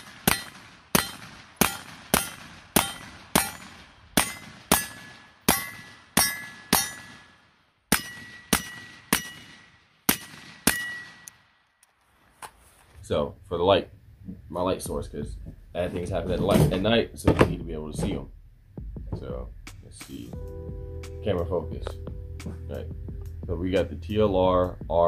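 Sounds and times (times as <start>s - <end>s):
steel targets ringing: 0.0s - 7.3s, 7.9s - 9.5s, 10.7s - 11.3s
suppressed pistol shots: 0.0s - 11.5s.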